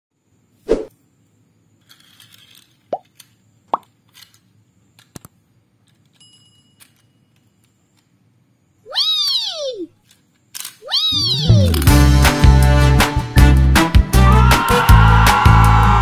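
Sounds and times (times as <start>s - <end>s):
soft swish: 0.6s - 0.9s
faint bell-like ding: 6.2s - 6.8s.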